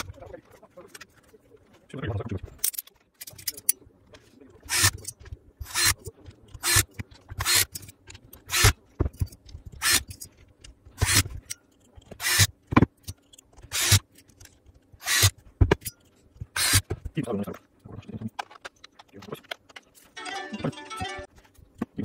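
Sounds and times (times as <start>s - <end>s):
screwdriver squeaking screws: 4.6s - 8.8s, 9.8s - 10.3s, 11.0s - 12.5s, 13.2s - 16.9s.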